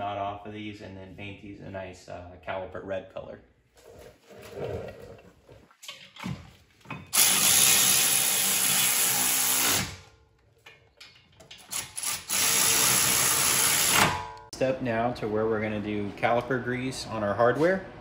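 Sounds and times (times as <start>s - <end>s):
electric ratchet motor running: 7.2s - 10.0s, 11.7s - 14.1s
ratchet clicks: 11.5s - 14.1s.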